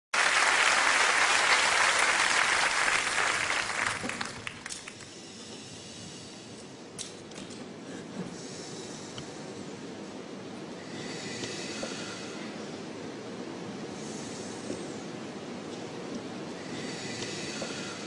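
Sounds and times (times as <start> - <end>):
audience applause: 0.2 - 5.0.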